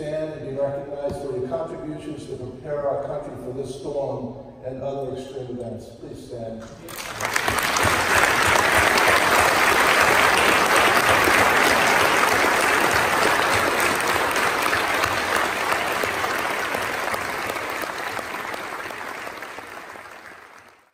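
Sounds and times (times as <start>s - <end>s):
large audience applauding: 6.8s - 20.9s.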